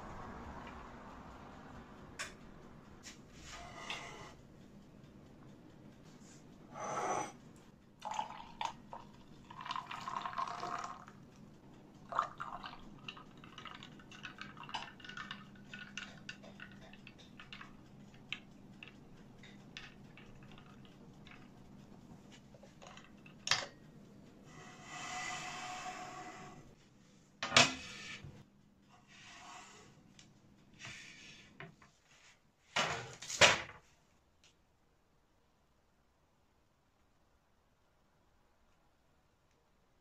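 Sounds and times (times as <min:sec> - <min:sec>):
milk pouring into a mug: 0:08.0 - 0:11.2, 0:12.0 - 0:18.2, 0:19.9 - 0:21.5.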